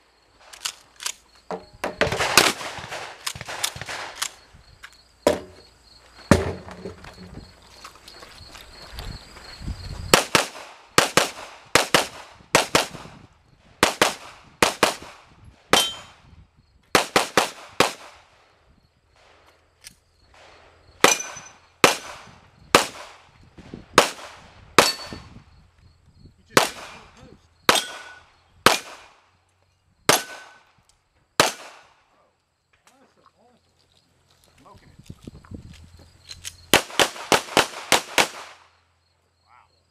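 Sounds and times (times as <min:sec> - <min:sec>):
pistol shots: 0:02.0 - 0:04.4, 0:10.1 - 0:13.2, 0:13.8 - 0:16.2, 0:21.0 - 0:23.2, 0:26.6 - 0:29.2, 0:30.1 - 0:30.7, 0:31.4 - 0:31.9, 0:36.7 - 0:38.7.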